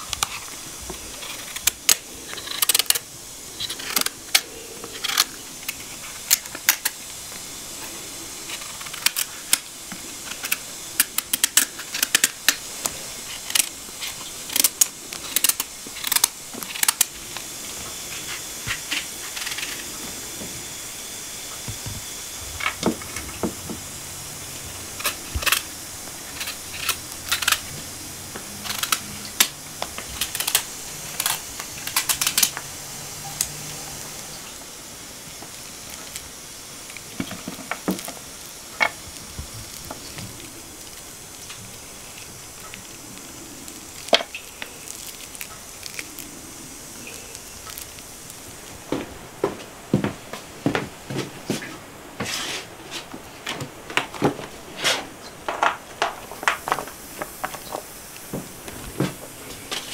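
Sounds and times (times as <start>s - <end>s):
knife cutting and scraping rind: 0.0s - 3.0s, 3.6s - 6.9s
background hiss: 0.0s - 59.9s.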